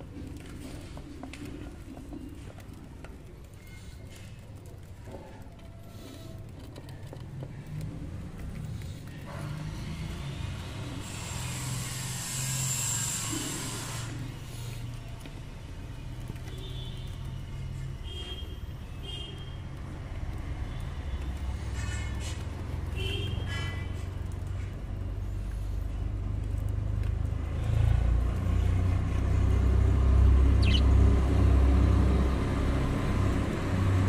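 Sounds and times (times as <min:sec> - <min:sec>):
vehicle engine hum: 0:00.0 - 0:11.9, 0:19.4 - 0:34.0
budgerigar chirps: 0:30.6 - 0:30.9.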